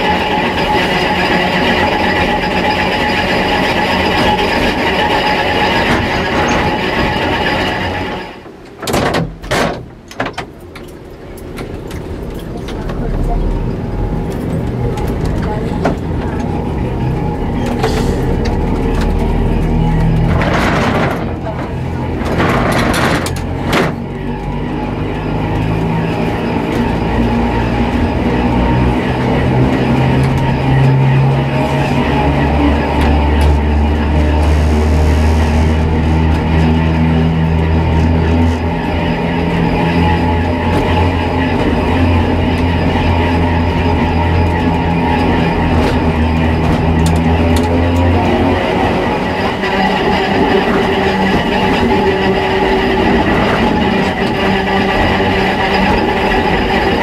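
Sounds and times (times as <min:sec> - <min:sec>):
tram wheels rumbling on rail: 0:00.0 - 0:57.0.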